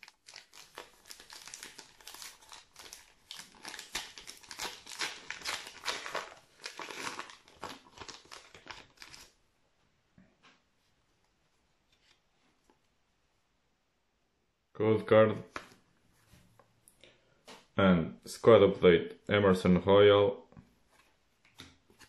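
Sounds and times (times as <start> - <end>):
card pack wrapper crinkling: 0.0 - 9.4.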